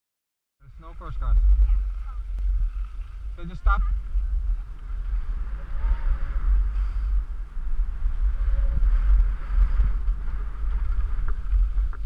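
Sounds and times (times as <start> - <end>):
wind buffeting microphone: 0.7 - 12.0
skis sliding over snow: 7.9 - 12.0.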